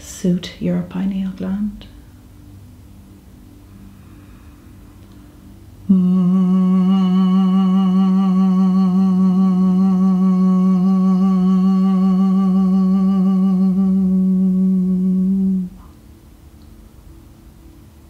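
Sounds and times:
person humming a low note: 5.8 - 16.0.

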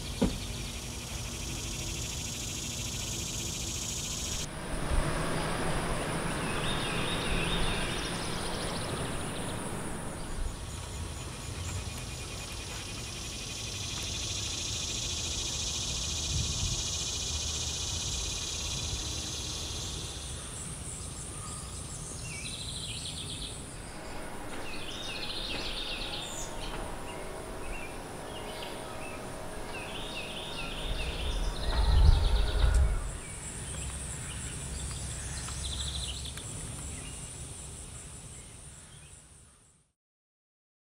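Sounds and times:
high insect drone: 0.0 - 35.8
loud low rumble: 4.4 - 11.2, 23.3 - 33.9
bird chirps: 5.2 - 13.0, 21.0 - 37.3.

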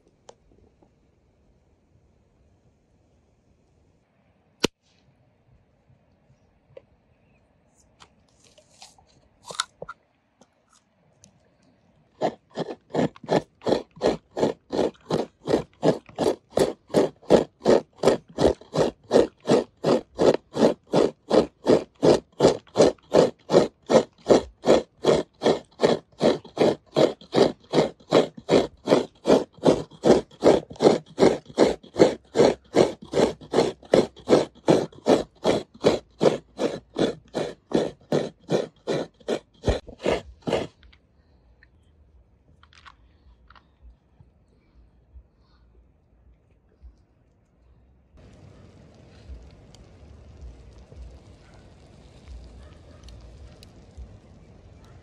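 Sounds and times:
coconut scraping strokes: 12.2 - 40.8.

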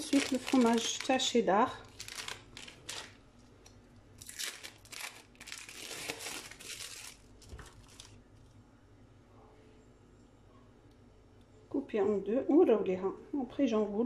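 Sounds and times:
plastic wrapping crinkling: 0.0 - 8.6.

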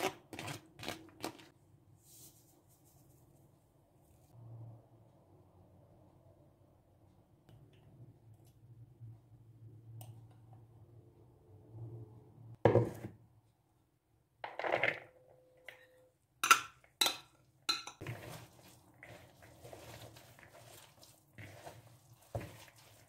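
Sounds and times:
mixture scraping and rustling in bowl: 18.0 - 23.0.

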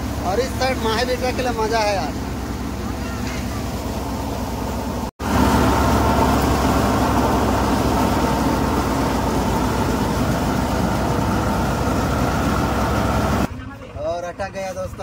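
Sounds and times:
thresher machine drone: 0.0 - 13.5.

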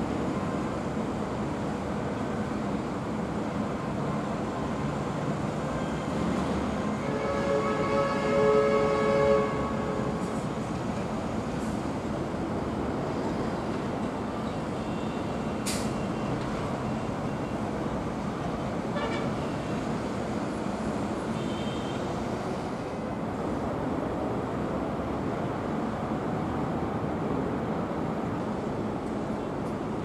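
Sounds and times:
horn sounding: 7.0 - 10.0.

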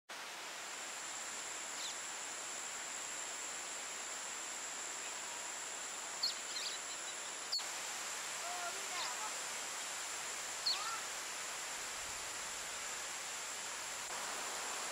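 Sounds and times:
even hiss: 0.1 - 14.9
high-pitched insect drone: 0.8 - 7.7.

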